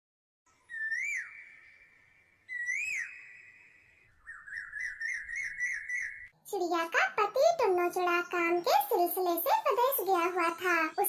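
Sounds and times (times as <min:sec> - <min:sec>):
whistled bird-like calls: 0:00.5 - 0:06.3.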